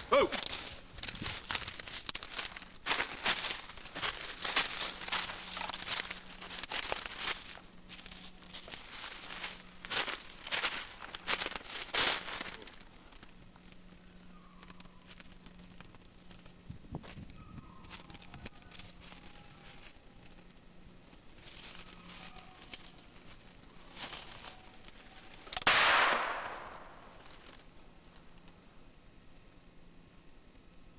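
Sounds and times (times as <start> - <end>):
footsteps rustling through brush: 0.0 - 27.7
loud gunshot: 25.6 - 27.0.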